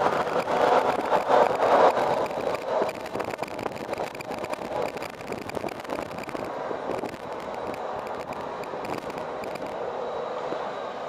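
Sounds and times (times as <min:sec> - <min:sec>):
jet engine rushing with whine: 0:00.0 - 0:11.0.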